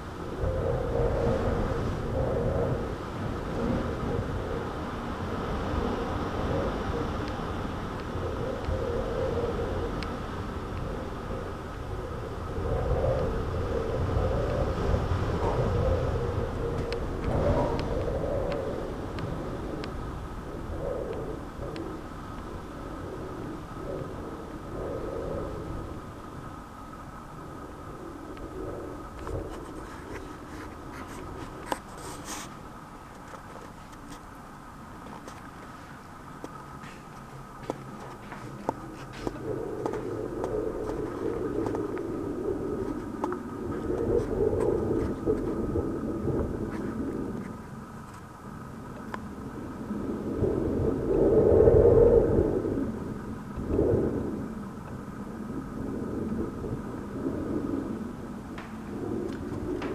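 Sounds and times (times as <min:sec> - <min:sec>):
thunder rumbling: 0:00.0 - 0:26.5, 0:36.6 - 0:48.1.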